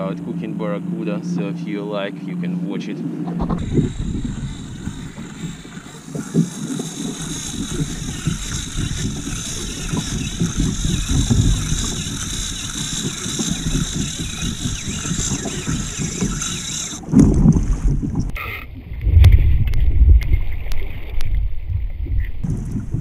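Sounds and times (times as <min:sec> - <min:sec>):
wind buffeting microphone: 0:03.3 - 0:23.0
fishing reel drag screaming: 0:03.5 - 0:17.0.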